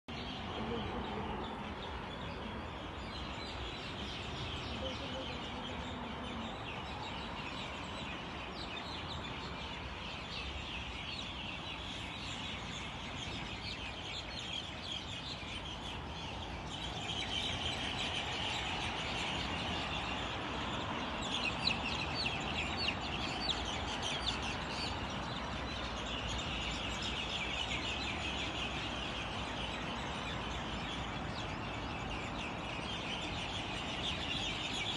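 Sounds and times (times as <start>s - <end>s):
many birds chattering: 0.1s - 34.9s.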